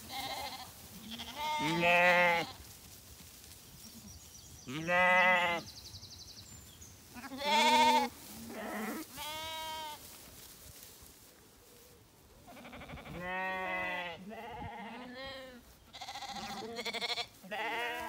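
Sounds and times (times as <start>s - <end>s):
lambs bleating: 0.0s - 2.6s, 4.7s - 5.6s, 7.2s - 10.0s, 12.5s - 18.0s.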